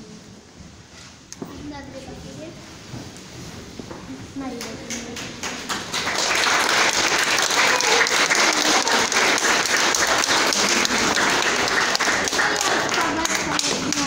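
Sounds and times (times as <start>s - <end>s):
voices: 4.0s - 14.0s
audience clapping: 4.4s - 14.0s.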